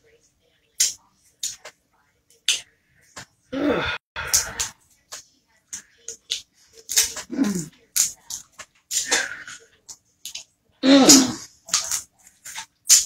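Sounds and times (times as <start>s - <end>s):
person humming: 3.6s - 4.0s.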